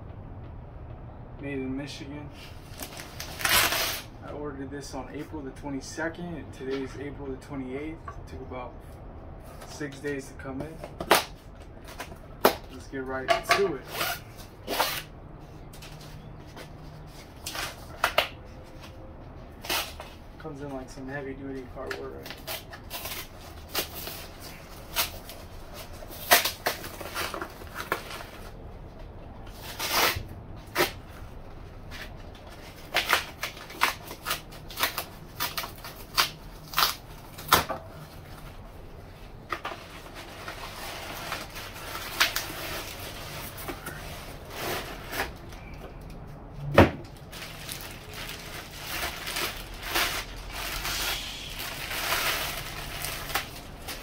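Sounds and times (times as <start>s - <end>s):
cardboard box tearing: 2.7s - 4.1s
plastic wrapping rustling: 15.7s - 46.0s, 47.1s - 54.0s.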